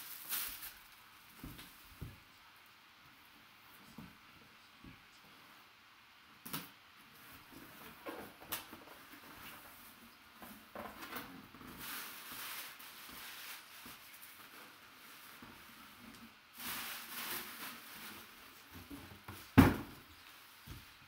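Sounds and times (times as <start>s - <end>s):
tissue paper and cloth rustling: 0.0s - 2.2s, 11.6s - 21.0s.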